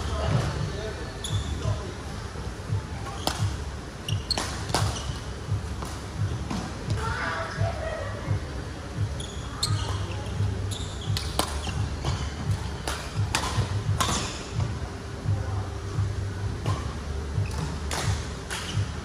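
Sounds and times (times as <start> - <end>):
sneakers squeaking on floor: 1.2 - 1.8, 3.0 - 5.4, 9.0 - 12.6, 16.7 - 19.0
rackets striking shuttlecock: 11.1 - 14.4, 17.5 - 18.8.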